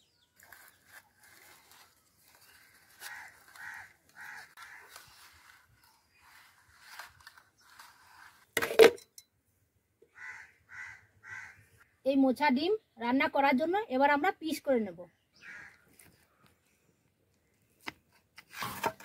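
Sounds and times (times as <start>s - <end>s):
crows cawing: 2.9s - 5.2s, 10.1s - 11.8s, 15.4s - 15.9s.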